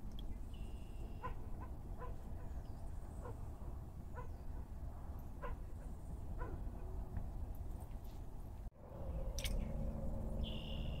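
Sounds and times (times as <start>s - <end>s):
low rumble: 8.7s - 11.0s.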